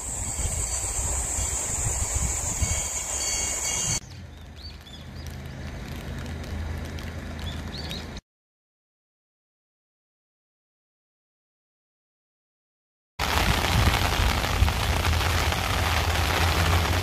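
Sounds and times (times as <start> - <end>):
high-pitched buzz: 0.0 - 4.0
bird chirps: 7.4 - 8.2.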